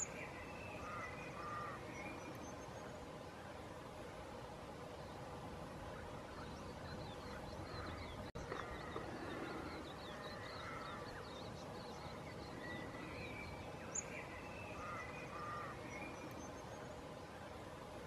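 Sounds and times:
birds chirping: 0.0s - 18.0s
outdoor background noise: 0.0s - 18.0s.

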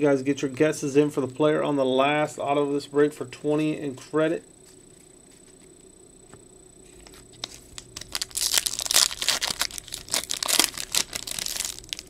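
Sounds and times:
foil wrapper crinkling and tearing: 7.0s - 12.0s.

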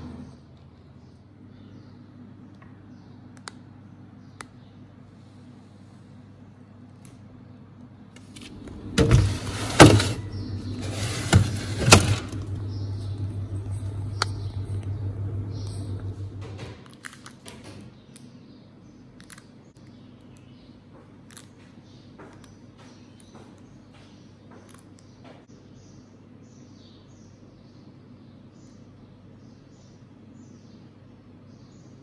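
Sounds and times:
fridge humming: 8.2s - 17.8s
metal baking tray clattering: 8.8s - 12.7s.

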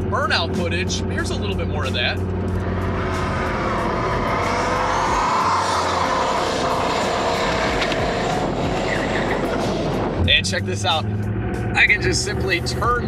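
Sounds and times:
car engine at high revs: 0.0s - 13.0s
tyres squealing: 2.6s - 9.9s.

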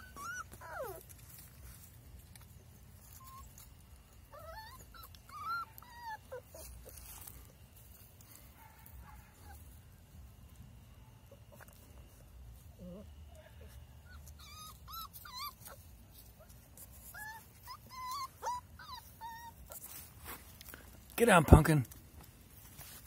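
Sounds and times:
puppies whimpering and whining: 0.0s - 8.0s, 11.2s - 20.2s.

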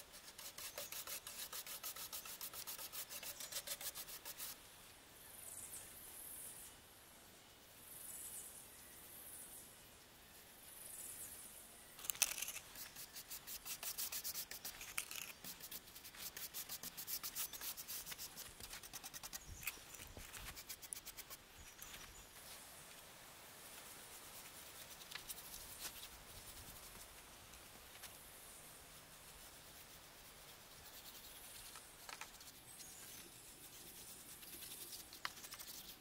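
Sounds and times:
hand tool scraping wood: 0.2s - 4.5s, 12.0s - 21.4s.

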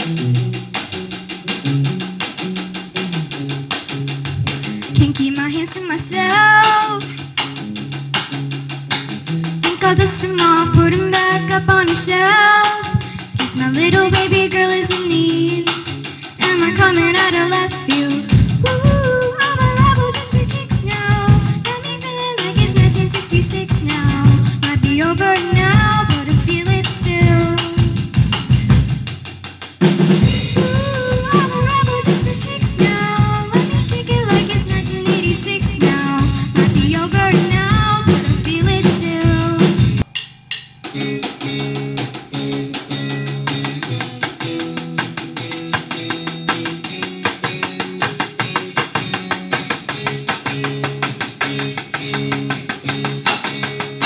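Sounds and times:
electric guitar: 0.0s - 40.2s, 40.8s - 54.0s
drum kit beat on cymbals: 0.0s - 54.0s
girl singing lead: 4.4s - 7.3s, 9.6s - 28.2s, 30.2s - 40.0s.

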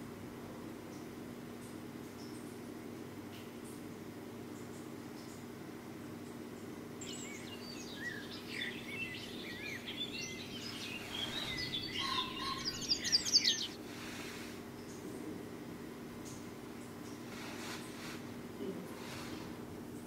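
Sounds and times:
low steady hum: 0.0s - 20.0s
small songbirds chirping: 6.2s - 13.8s.

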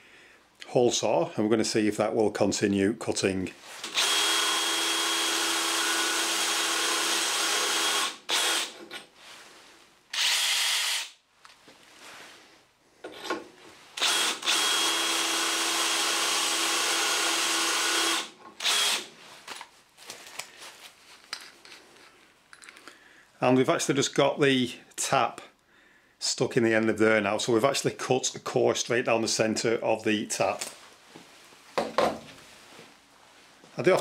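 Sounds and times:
cordless drill whining: 3.8s - 8.9s, 10.1s - 11.2s, 14.0s - 19.1s.

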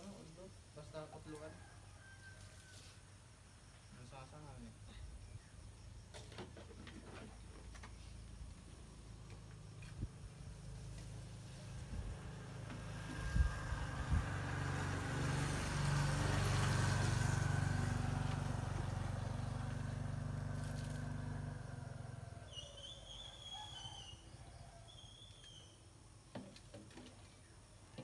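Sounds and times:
passing vehicle engine: 8.8s - 22.5s.

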